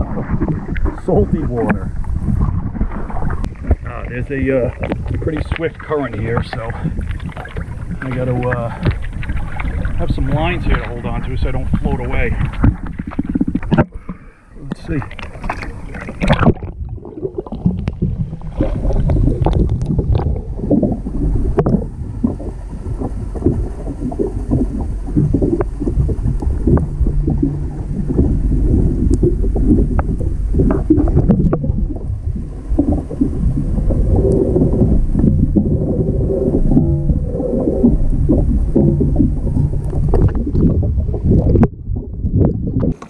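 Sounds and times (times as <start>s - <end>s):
muffled underwater current rushing: 0.0s - 43.0s
camera splashing into water: 14.8s - 20.6s.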